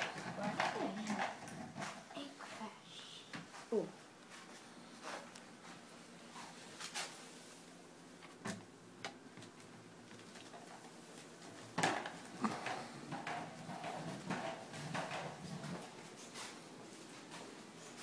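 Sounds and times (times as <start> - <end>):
plastic ball rolling on wood floor: 0.0 - 2.2, 10.1 - 16.1.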